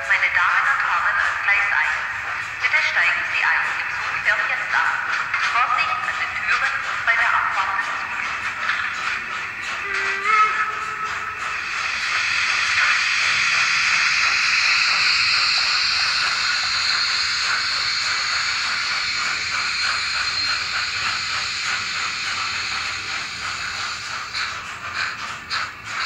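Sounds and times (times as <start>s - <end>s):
model train rushing hiss: 0.0s - 26.0s
wheels clicking rapidly: 1.9s - 26.0s.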